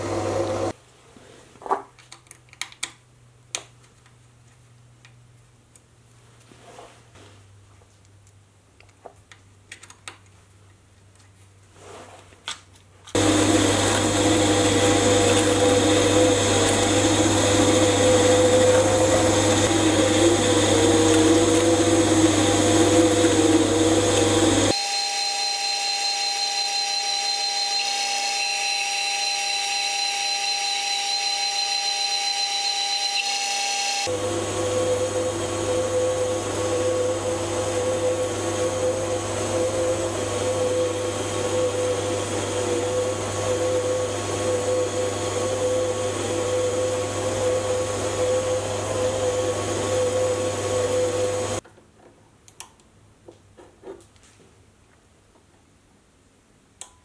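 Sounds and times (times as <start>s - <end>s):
lathe motor whine with cutting: 13.2s - 51.6s.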